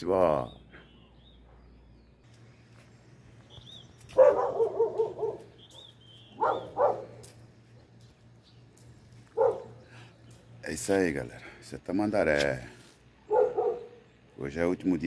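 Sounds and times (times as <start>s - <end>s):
dog barking: 4.1s - 5.6s, 6.4s - 7.2s, 9.3s - 9.8s, 13.3s - 14.0s.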